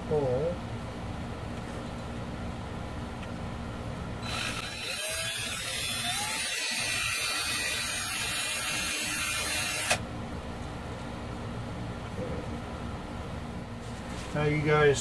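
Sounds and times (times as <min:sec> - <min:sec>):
cordless drill running: 0:04.2 - 0:10.0.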